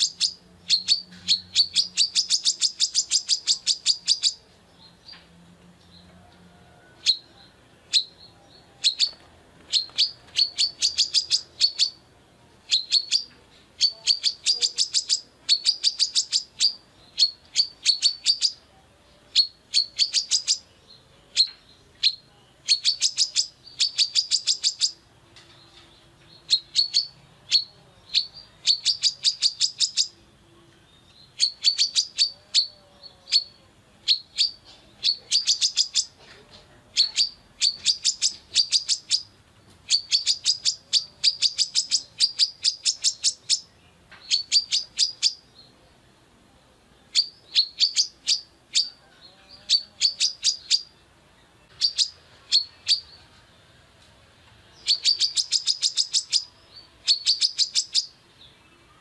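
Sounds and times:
sunbird chirping: 0:00.0 - 0:53.8, 0:54.6 - 0:59.0.

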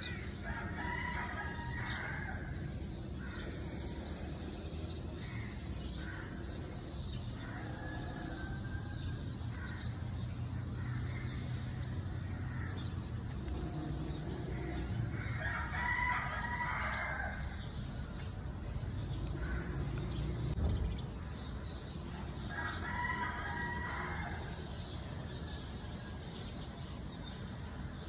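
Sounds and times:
bird calls: 0:00.0 - 0:28.0
low background noise: 0:00.0 - 0:28.0
rooster crowing: 0:00.4 - 0:02.6, 0:15.3 - 0:17.6.

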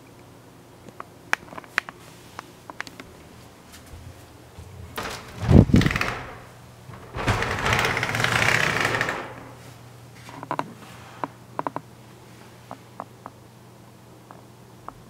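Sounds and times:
folding door rattling scrape: 0:04.6 - 0:09.8
door bump: 0:04.8 - 0:09.6.

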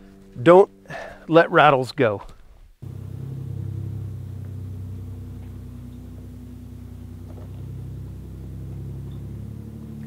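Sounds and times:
truck engine droning: 0:02.8 - 0:10.0.

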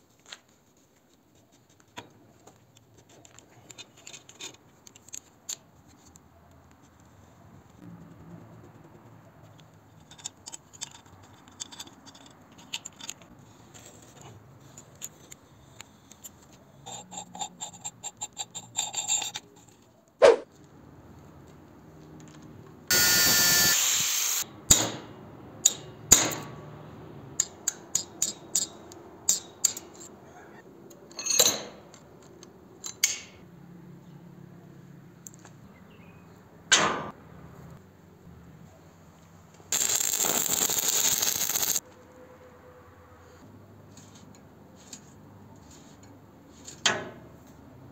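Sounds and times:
angle grinder cutting metal: 0:22.9 - 0:24.4, 0:39.8 - 0:41.8.

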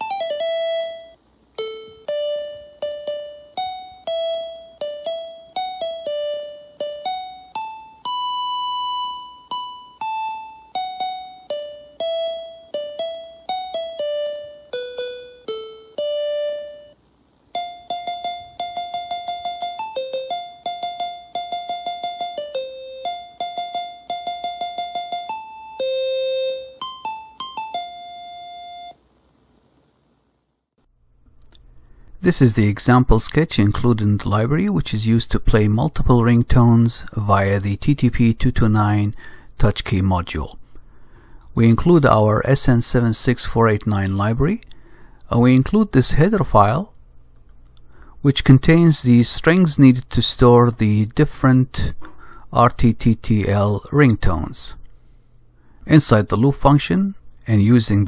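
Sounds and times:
square-wave ringtone melody: 0:00.0 - 0:29.0.

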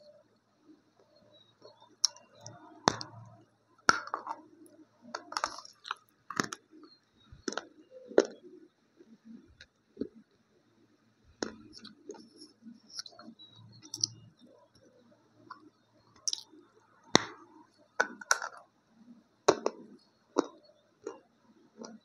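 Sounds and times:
soft chewing: 0:01.0 - 0:10.4, 0:11.3 - 0:18.7
clay cracking between teeth: 0:03.9 - 0:06.6, 0:11.4 - 0:14.3, 0:16.2 - 0:17.4.

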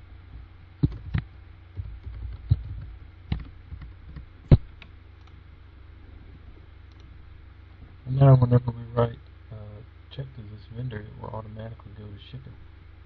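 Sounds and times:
steady low hum: 0:00.0 - 0:13.0
keyboard keys clicking: 0:01.8 - 0:05.4.

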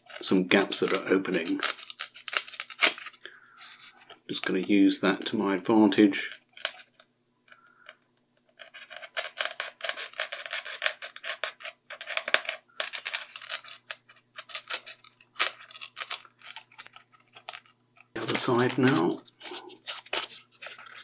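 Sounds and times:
scalpel blade scraping glue: 0:08.5 - 0:17.6.

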